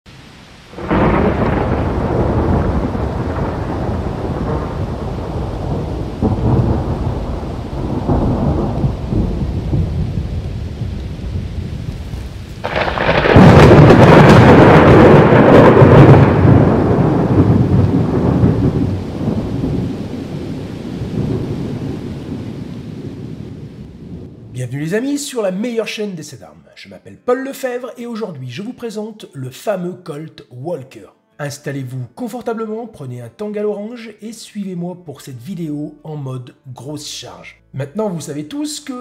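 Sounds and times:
rain: 0:00.1 - 0:25.8
rolling thunder: 0:00.7 - 0:24.6.

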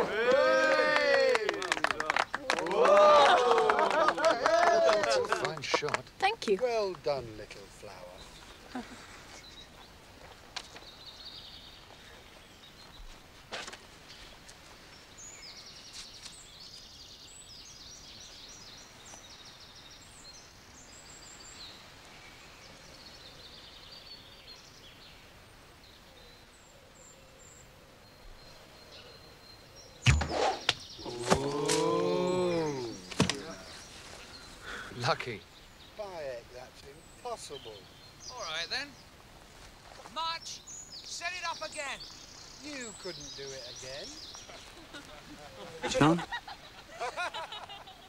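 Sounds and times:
birds chirping: 0:00.0 - 0:48.0
sharp loud crack: 0:30.1 - 0:30.9.

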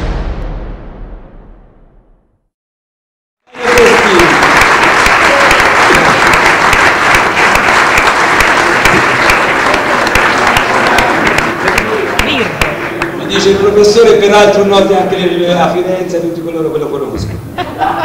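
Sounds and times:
audience applauding: 0:03.5 - 0:14.2.

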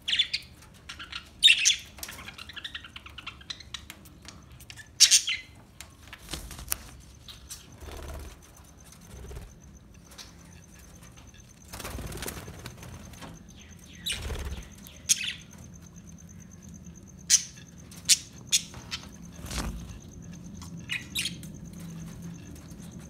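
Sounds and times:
wing flutters: 0:06.0 - 0:14.9, 0:18.7 - 0:20.4
budgerigars chirping: 0:13.5 - 0:15.5.

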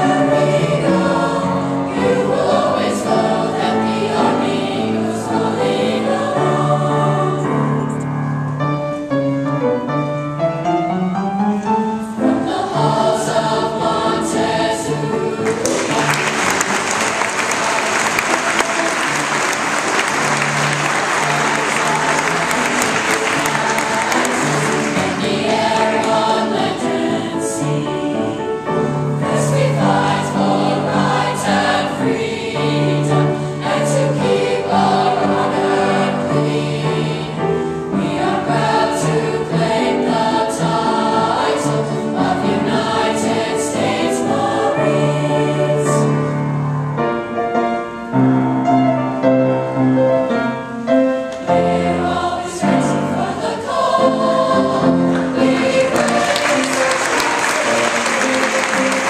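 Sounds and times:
choir singing: 0:00.0 - 0:08.3, 0:11.1 - 0:46.7, 0:51.0 - 0:59.0.

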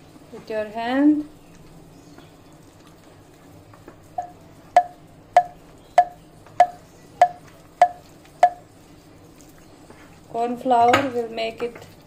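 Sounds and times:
porcelain bowl knocking: 0:04.2 - 0:08.6.

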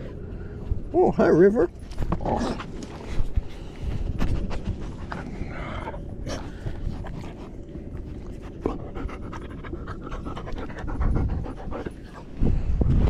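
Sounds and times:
low rumble on microphone: 0:00.0 - 0:13.0
dog panting: 0:02.9 - 0:12.6.

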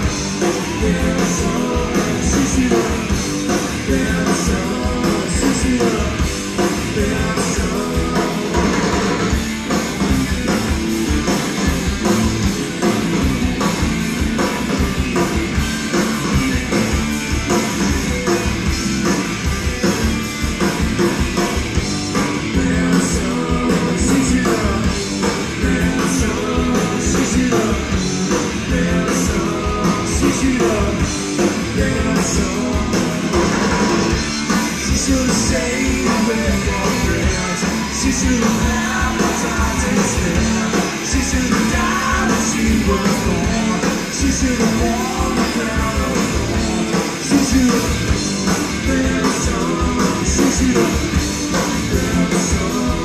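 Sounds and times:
bass guitar: 0:00.0 - 0:53.0
distorted electric guitar: 0:00.0 - 0:53.0
drums: 0:00.0 - 0:53.0
person singing: 0:00.4 - 0:09.0, 0:22.4 - 0:33.4, 0:34.8 - 0:48.1, 0:48.7 - 0:53.0.

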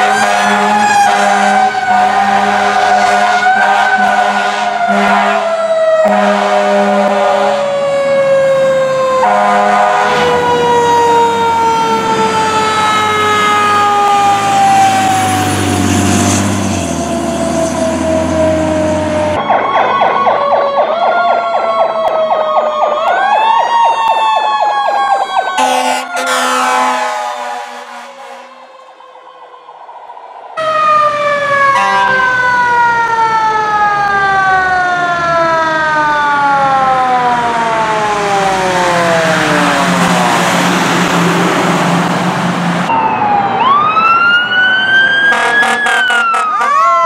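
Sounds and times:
horn blasts: 0:00.0 - 0:07.7, 0:09.2 - 0:10.3, 0:25.6 - 0:28.7, 0:31.7 - 0:32.4, 0:45.3 - 0:46.7
fast pulsing siren yelp: 0:00.0 - 0:15.7, 0:16.8 - 0:41.2, 0:42.8 - 0:47.0
siren wailing: 0:00.0 - 0:47.0
truck engine rumbling: 0:09.8 - 0:20.2, 0:36.6 - 0:46.6.

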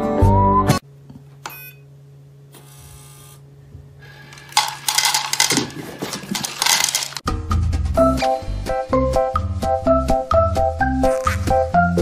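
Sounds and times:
dry food rattling into bowl: 0:04.3 - 0:07.2.

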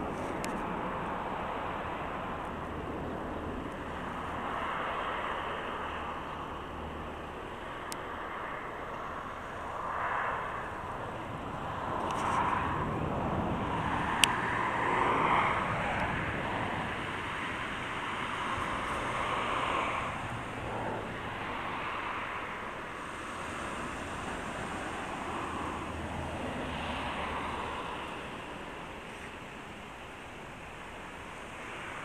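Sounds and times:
moving vehicle running noise: 0:00.0 - 0:32.0.

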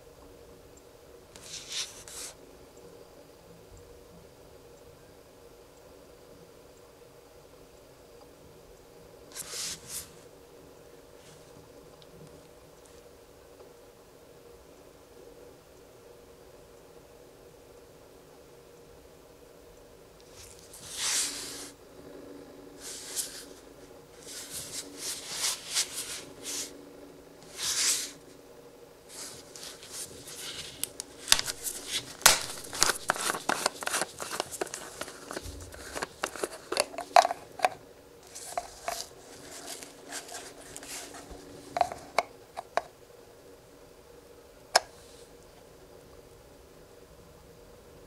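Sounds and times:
gloved hand rubbing cap: 0:20.4 - 0:21.8, 0:22.8 - 0:23.6, 0:24.2 - 0:26.7, 0:27.4 - 0:28.2, 0:29.1 - 0:42.9
plastic cap clicking: 0:30.8 - 0:37.8.

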